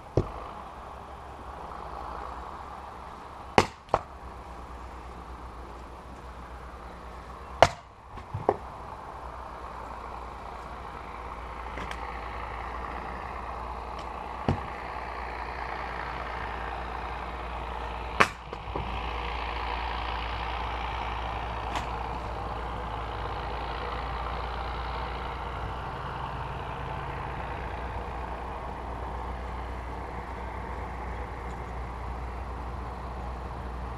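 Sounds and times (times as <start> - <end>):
maul striking firewood: 0.0 - 0.7, 3.0 - 4.4, 7.0 - 8.9, 11.5 - 12.2, 12.8 - 15.6, 17.2 - 19.0, 21.6 - 22.3
steady background noise: 0.0 - 33.9.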